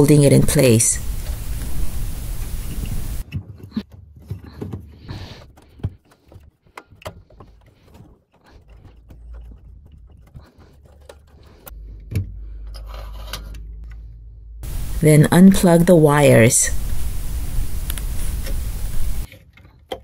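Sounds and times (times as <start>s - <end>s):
low steady hum: 0.0s - 3.2s, 11.7s - 19.3s
clicks taps and scrapes on metal: 3.3s - 14.0s.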